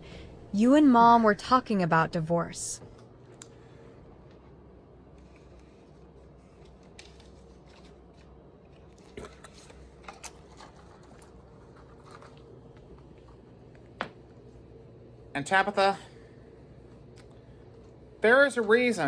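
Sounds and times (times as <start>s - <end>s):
steady low hum: 0.0s - 19.0s
faint clicks and handling noises: 2.8s - 3.6s, 4.2s - 14.3s.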